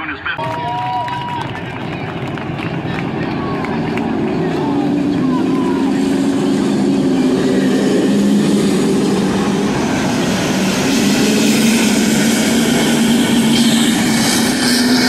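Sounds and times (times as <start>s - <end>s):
race car engines droning: 0.0s - 15.0s.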